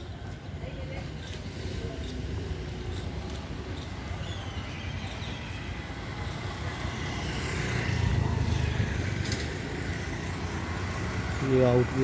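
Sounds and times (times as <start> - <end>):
road traffic rumble: 0.0 - 12.0
vehicle passing close: 6.1 - 12.0.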